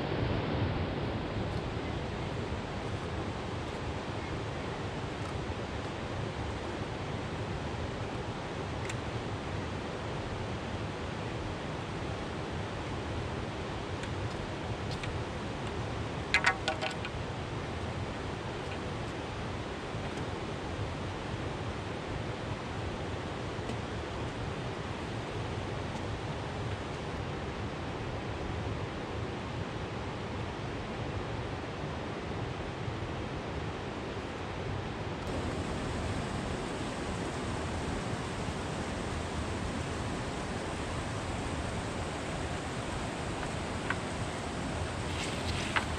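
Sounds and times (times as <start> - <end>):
river water running over rocks: 10.8 - 21.3, 35.2 - 45.9.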